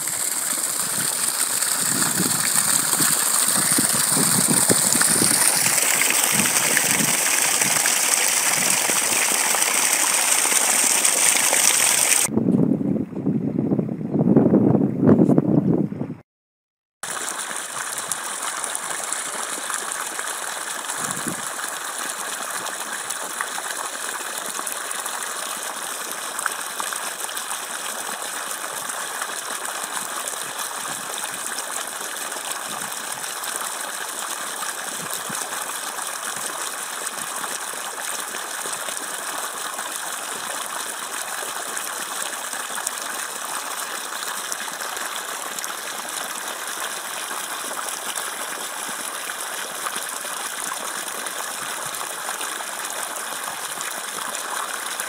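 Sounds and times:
water gushing from pipe: 0.0 - 12.3, 17.0 - 55.0
water splashing into pool: 0.0 - 12.3, 17.0 - 55.0.

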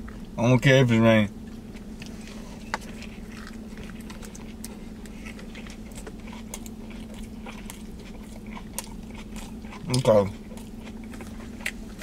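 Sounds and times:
man chewing food: 0.0 - 0.7, 1.3 - 12.0
low hum: 0.0 - 12.0.

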